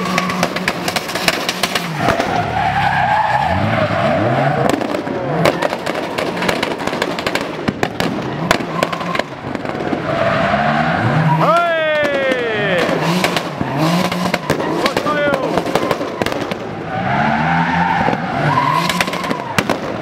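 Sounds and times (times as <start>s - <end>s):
sharp exhaust pops: 0.0s - 2.5s, 4.6s - 10.1s, 11.6s - 16.8s, 18.0s - 20.0s
car engine revving: 0.0s - 20.0s.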